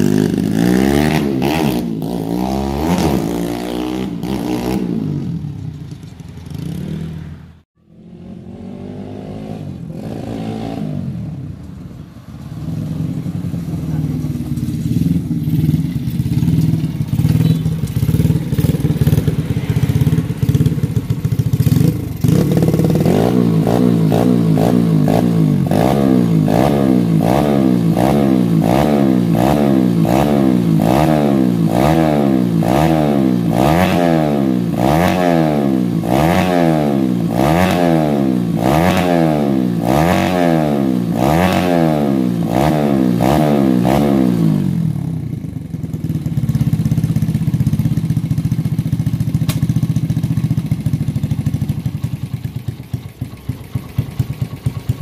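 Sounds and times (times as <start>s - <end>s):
motorcycle engine revving: 0.0s - 55.0s
motorcycle engine idling: 13.0s - 25.7s, 44.6s - 55.0s.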